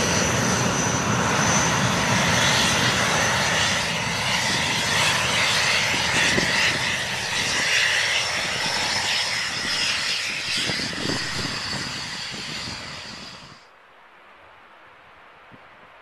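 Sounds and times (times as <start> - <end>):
jet engine roaring with whine: 0.0 - 13.7.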